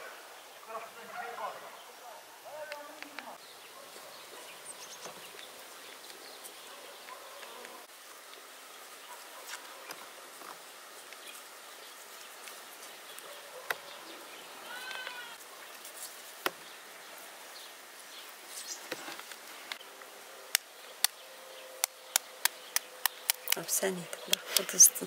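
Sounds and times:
eggshells tapped and cracking: 22.1s - 24.7s.

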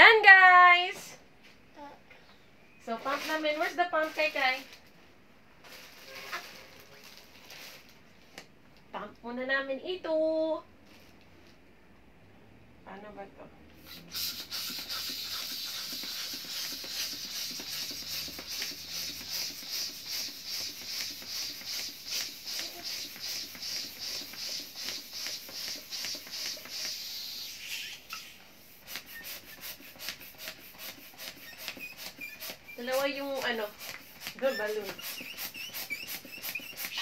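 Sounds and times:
hand pump rasping hiss: 13.8s - 37.0s.

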